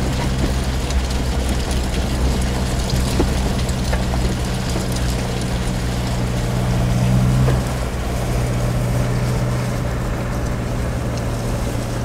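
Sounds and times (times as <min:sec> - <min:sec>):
tyres rumbling on stones: 0:00.0 - 0:12.0
vehicle engine drone: 0:00.0 - 0:12.0.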